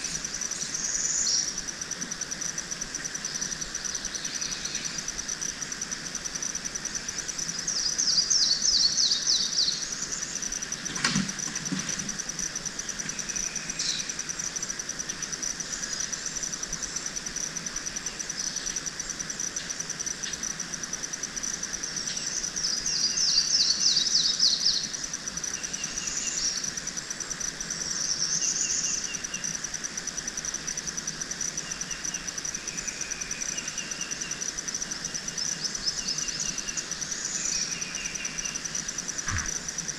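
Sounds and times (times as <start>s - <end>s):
songbird singing: 0.0s - 1.6s, 3.2s - 5.7s, 7.2s - 10.5s, 12.5s - 14.3s, 22.0s - 26.7s, 35.0s - 39.9s
insects trilling: 0.0s - 39.9s
bird chirps: 39.3s - 39.6s
sharp knock: 39.3s - 39.6s.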